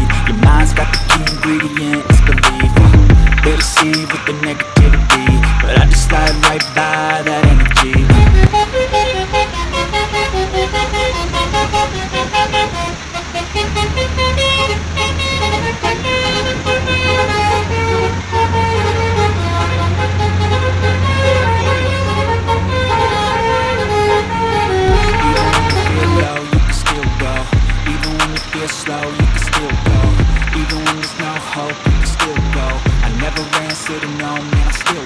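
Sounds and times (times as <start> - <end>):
bus engine rumble: 0.0 - 35.0
multi-tone air horn tune: 8.4 - 29.8.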